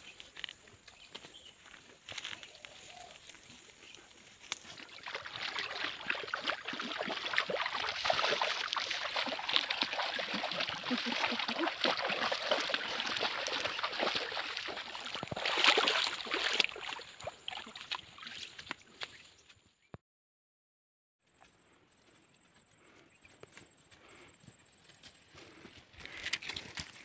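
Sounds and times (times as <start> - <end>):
feet splashing in water: 4.4 - 19.3.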